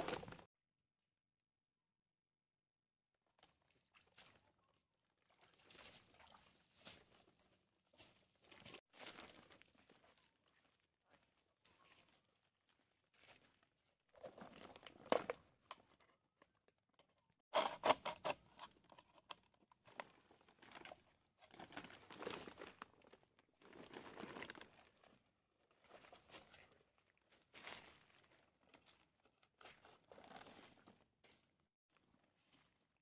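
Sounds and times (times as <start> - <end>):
feet splashing in muddy water: 5.2 - 10.7.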